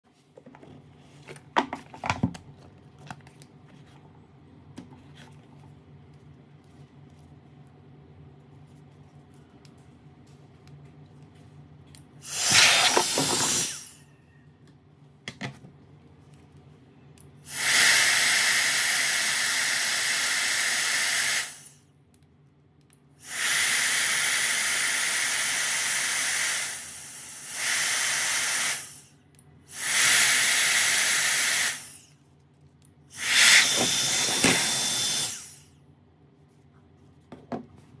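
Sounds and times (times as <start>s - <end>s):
jet fan blowing rushing air: 12.2s - 14.0s, 33.1s - 35.7s.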